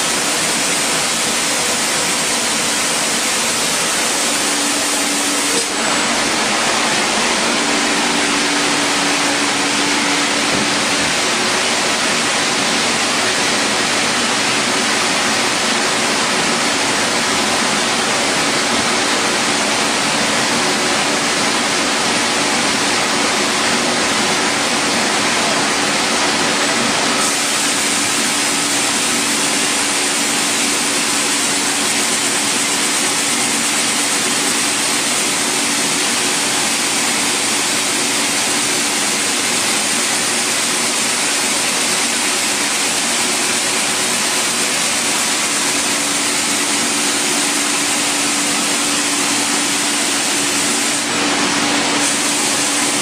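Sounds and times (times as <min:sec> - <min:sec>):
spray gun hissing: 0:00.0 - 0:11.6, 0:27.0 - 0:37.9, 0:42.4 - 0:53.0.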